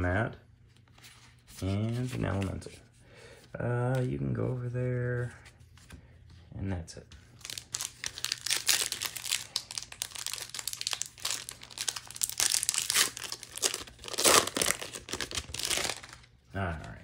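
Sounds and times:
foil wrapper crinkling and tearing: 0:07.4 - 0:16.3.

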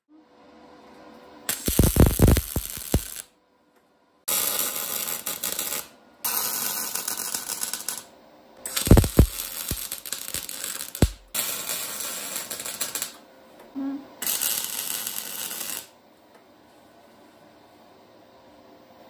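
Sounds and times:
welder arc crackling: 0:01.5 - 0:03.3, 0:04.3 - 0:08.1, 0:08.7 - 0:13.2, 0:14.2 - 0:15.9.

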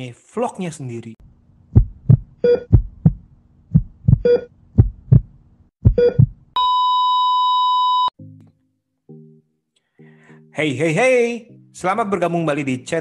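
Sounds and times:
heartbeat thumps: 0:01.7 - 0:06.5
heart monitor beep: 0:02.4 - 0:02.9, 0:04.1 - 0:04.5, 0:05.8 - 0:08.1.

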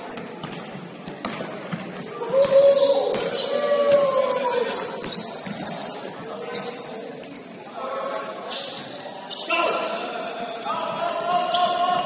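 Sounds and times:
shoe squeaks: 0:00.0 - 0:00.4, 0:01.8 - 0:07.7, 0:08.5 - 0:09.7, 0:11.4 - 0:12.0
ball bouncing on court: 0:00.0 - 0:04.1, 0:05.0 - 0:06.3.

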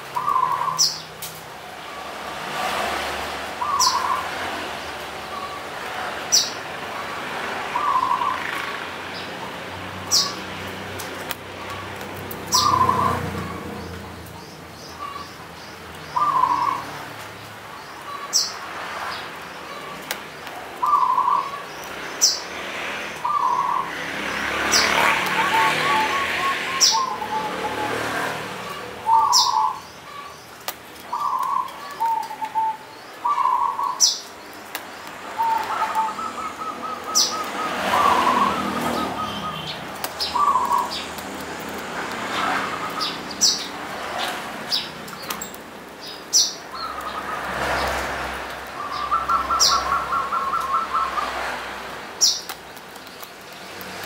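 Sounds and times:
dove cooing: 0:25.0 - 0:29.8, 0:35.4 - 0:41.0, 0:48.8 - 0:51.4.

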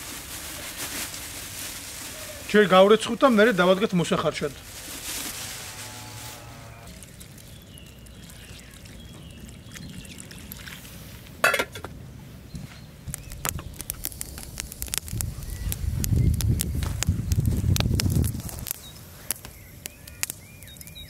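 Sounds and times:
wood fire crackling: 0:00.0 - 0:09.4, 0:12.9 - 0:21.0
water pouring and trickling: 0:06.9 - 0:11.4
metal lid clink: 0:11.4 - 0:11.9.

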